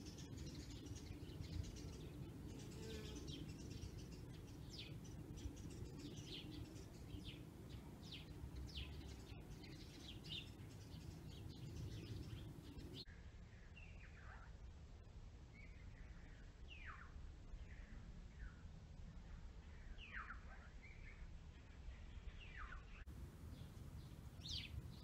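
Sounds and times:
faint bird chirps: 0.0s - 14.7s, 15.5s - 25.0s
low background rumble: 23.0s - 25.0s.

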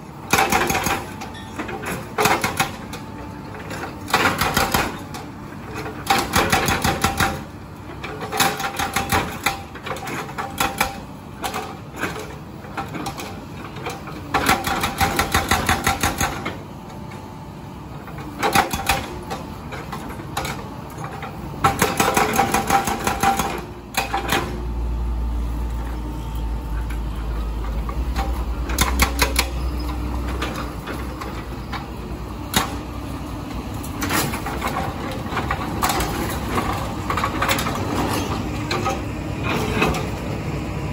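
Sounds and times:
excavator engine running: 0.0s - 40.9s
hydraulic breaker hammering concrete: 0.3s - 1.2s, 1.9s - 2.9s, 3.7s - 5.1s, 6.0s - 7.5s, 8.2s - 11.9s, 14.4s - 16.6s, 21.6s - 24.6s.

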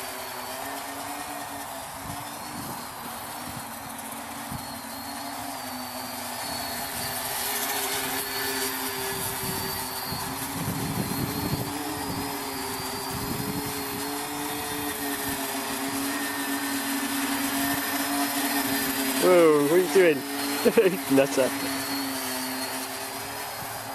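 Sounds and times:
quadcopter motors buzzing: 0.0s - 23.9s.

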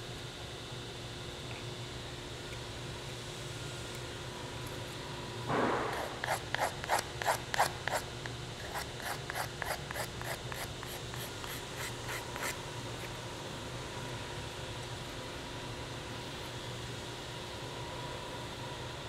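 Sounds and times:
hand file rasping wood: 6.0s - 12.6s.

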